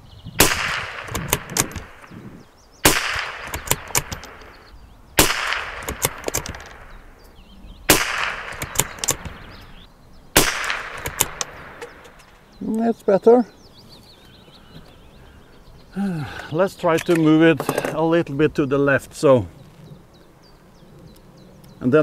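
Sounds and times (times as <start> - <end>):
rifle shots with echo: 0.4 - 2.1, 2.8 - 4.6, 5.2 - 7.0, 7.9 - 9.7, 10.3 - 12.2
rifle bolt clicks: 0.6 - 2.1, 2.9 - 4.6, 5.2 - 6.9, 7.9 - 9.4, 10.4 - 12.3.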